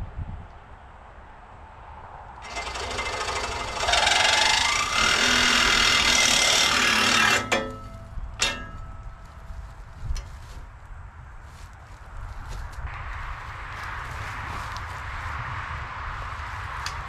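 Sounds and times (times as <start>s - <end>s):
reciprocating saw cutting steel: 2.4s - 9.1s
ringing metal clanks: 2.4s - 9.6s.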